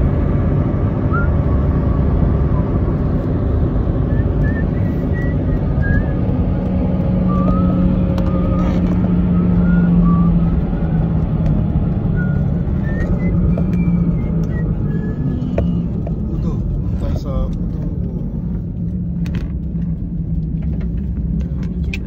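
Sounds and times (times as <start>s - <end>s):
car road and engine noise: 0.0s - 22.0s.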